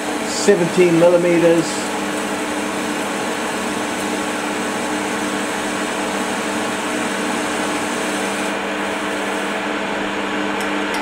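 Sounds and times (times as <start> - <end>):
lathe motor humming: 0.0 - 11.0.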